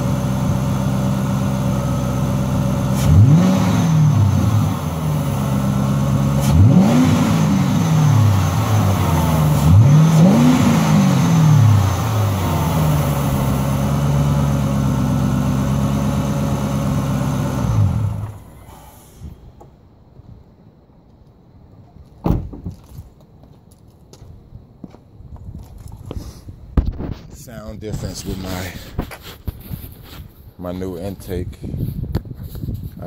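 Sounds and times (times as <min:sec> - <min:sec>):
car engine idling and revving: 0:00.0 - 0:20.0.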